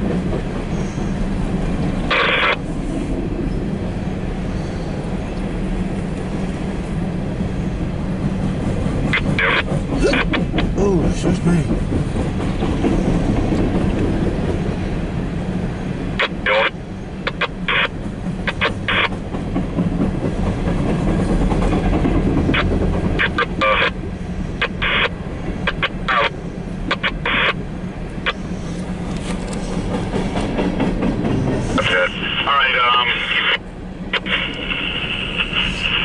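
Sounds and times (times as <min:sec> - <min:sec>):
train wheels clicking and clanking: 0:00.0 - 0:02.1, 0:08.1 - 0:14.8, 0:17.3 - 0:23.6, 0:28.4 - 0:31.9
train rumbling past: 0:00.0 - 0:36.0.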